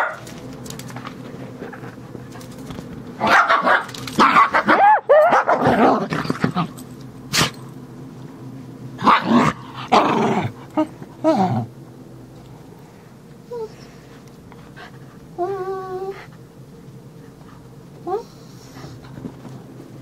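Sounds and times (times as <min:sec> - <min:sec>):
dogs growling and barking: 0:01.5 - 0:07.6, 0:09.0 - 0:11.7.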